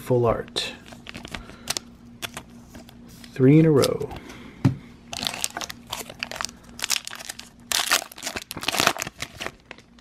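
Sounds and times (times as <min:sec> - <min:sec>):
foil wrapper crinkling: 0:00.8 - 0:02.4, 0:05.1 - 0:10.0.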